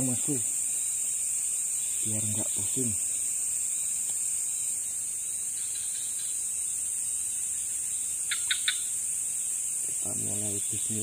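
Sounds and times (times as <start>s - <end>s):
crickets chirping chorus: 0.0s - 11.0s.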